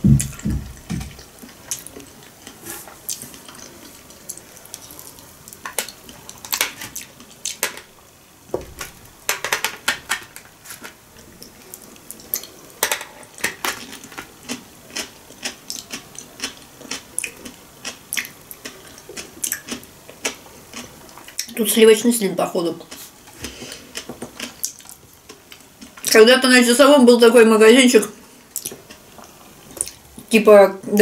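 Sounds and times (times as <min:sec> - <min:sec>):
person chewing food: 0:00.0 - 0:07.6, 0:13.7 - 0:21.5, 0:22.9 - 0:26.1.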